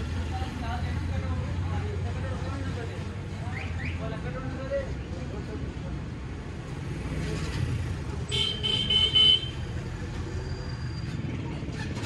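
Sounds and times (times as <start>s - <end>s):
low rumble of traffic: 0.0s - 12.0s
vehicle horn beeps: 8.3s - 9.6s.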